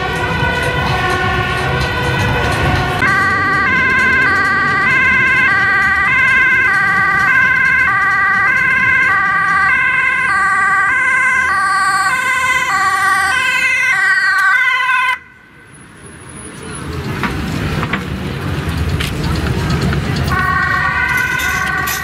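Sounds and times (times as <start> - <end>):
ambulance two-tone siren: 0.0 - 15.8, 20.2 - 22.0.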